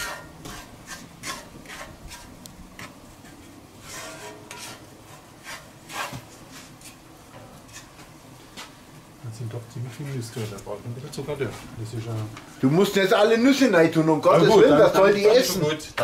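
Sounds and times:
wooden spoon scraping sugar in skillet: 0.0 - 8.8.

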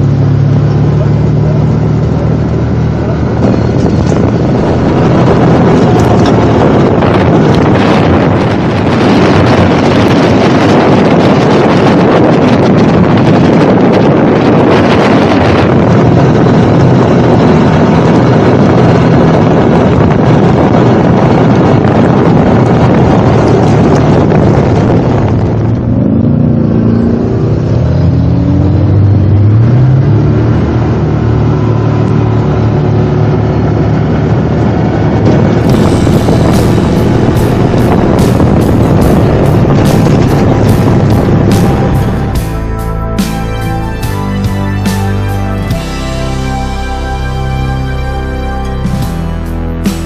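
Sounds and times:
atv engine running: 0.0 - 50.0
wind buffeting microphone: 0.0 - 50.0.

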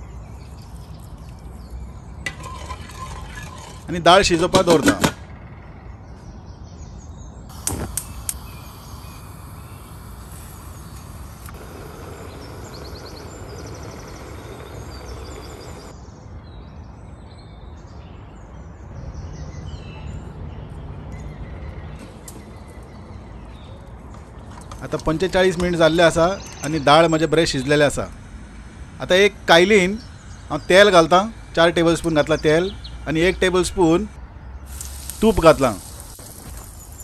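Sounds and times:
pot boiling with hiss: 7.5 - 16.0, 34.6 - 37.0.

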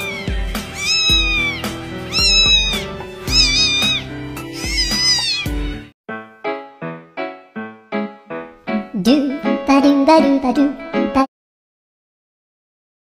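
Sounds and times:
kitten meowing: 0.0 - 5.7
background music: 0.0 - 11.3.

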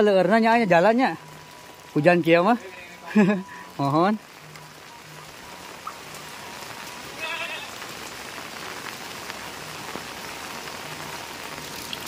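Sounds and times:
rain falling on roof tiles: 0.0 - 12.0
animal bleat: 7.2 - 7.8.

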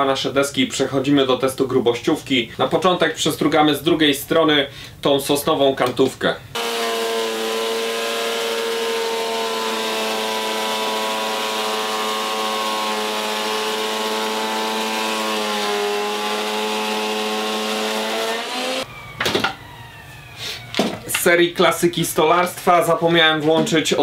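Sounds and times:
planer motor whining: 6.6 - 19.1.

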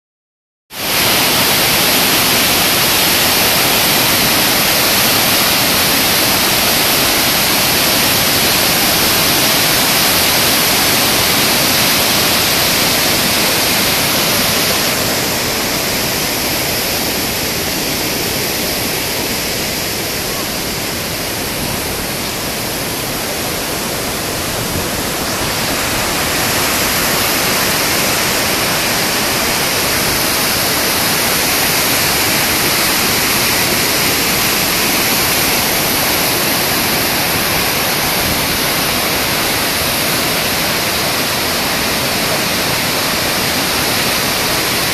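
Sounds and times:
roar of rushing rapids: 0.8 - 44.9.

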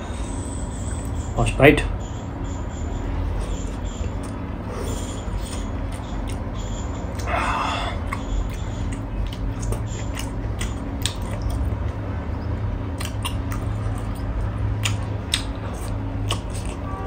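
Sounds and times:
low steady hum: 0.0 - 17.0
person chewing: 3.4 - 12.1, 12.8 - 17.0
wet mouth clicks and smacks: 8.1 - 12.0, 12.9 - 16.8.

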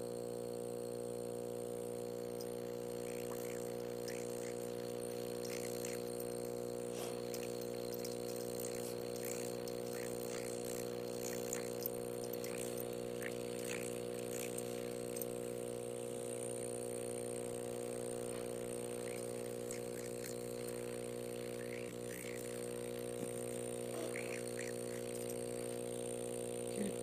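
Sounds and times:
electric air pump humming: 0.0 - 27.0
faint clicks: 7.1 - 15.4.

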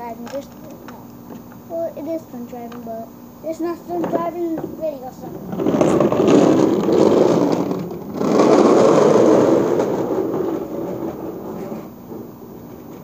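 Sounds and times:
plastic wheels rumbling over pebbles: 4.0 - 13.0.

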